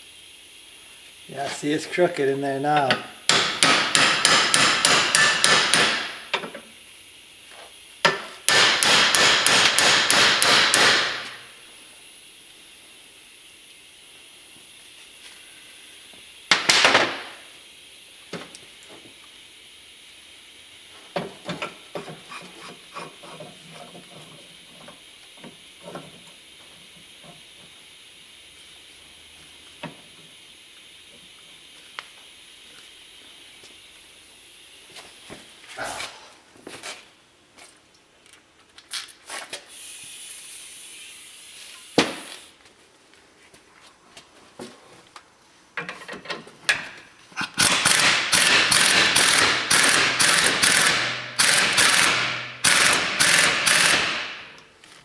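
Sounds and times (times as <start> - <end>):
steady hiss: 0.0 - 55.0
impact wrench hammering: 2.7 - 6.6, 8.0 - 11.4, 16.5 - 17.3, 46.7 - 54.6
sharp metal knocks: 2.8 - 6.2, 8.1 - 11.3.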